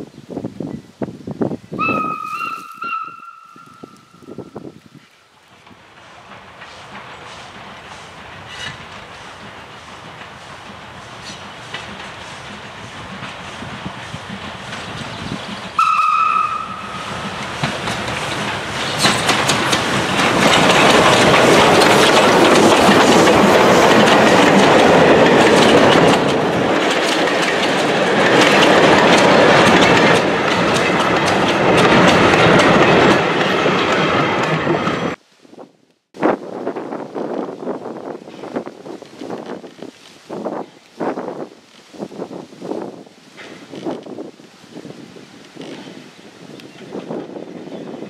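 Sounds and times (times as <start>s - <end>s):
steam locomotive whistle: 1.8s - 4.4s, 15.8s - 17.2s
wagon wheels clattering over rails: 16.4s - 35.1s.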